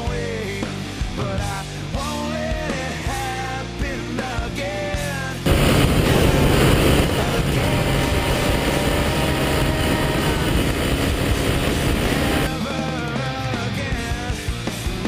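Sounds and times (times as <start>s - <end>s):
motorcycle engine running: 5.5s - 12.5s
rushing wind noise: 5.5s - 12.5s.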